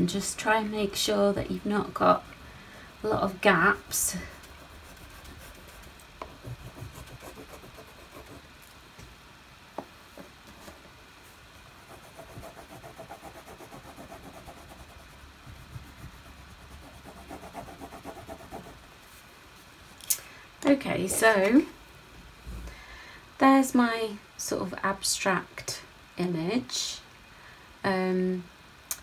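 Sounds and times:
crayon scribbling on paper: 0:04.3 - 0:08.4, 0:11.9 - 0:18.8.

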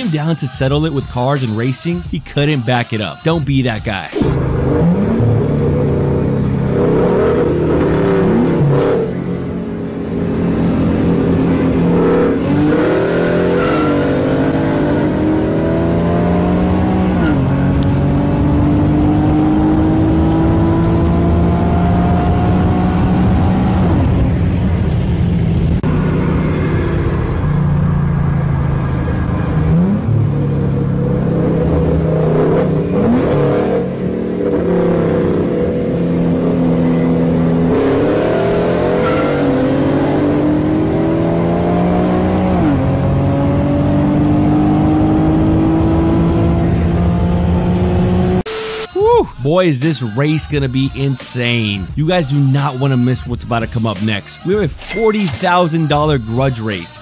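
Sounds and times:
car engines at full throttle: 0:04.2 - 0:48.5
road and wind rumble: 0:04.2 - 0:48.5.

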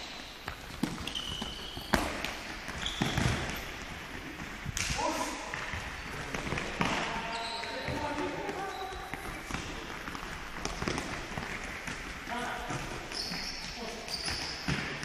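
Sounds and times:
sneakers squeaking on court: 0:00.0 - 0:04.6, 0:05.4 - 0:15.0
ball kicked and bouncing on floor: 0:00.4 - 0:03.9, 0:05.5 - 0:13.4.

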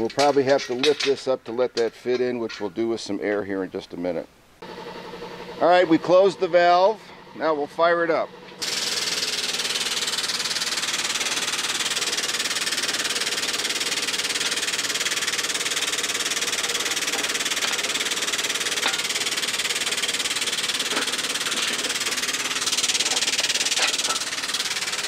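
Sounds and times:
air pump hissing: 0:08.4 - 0:25.0.

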